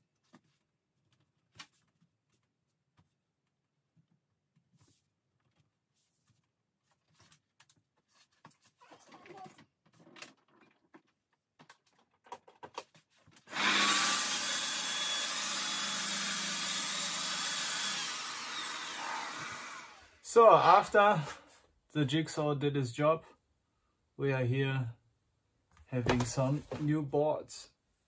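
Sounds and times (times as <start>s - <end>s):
track saw cutting fiberboard: 13.5s - 20.2s.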